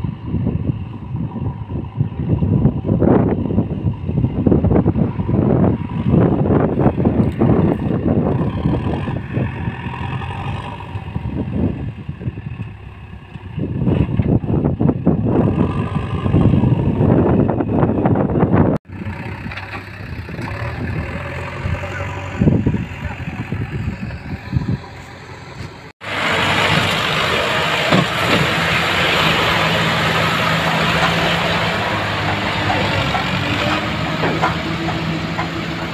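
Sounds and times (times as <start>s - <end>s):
tractor engine humming: 0.0s - 35.9s
backhoe loader loading soil: 19.0s - 24.1s, 24.8s - 35.9s.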